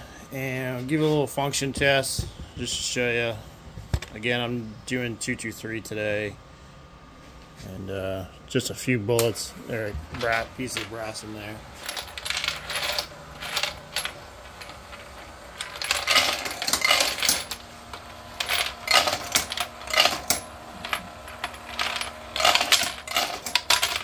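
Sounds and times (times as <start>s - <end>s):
faint steady hum: 0.0s - 24.0s
brass cases clinking and rattling: 10.1s - 24.0s.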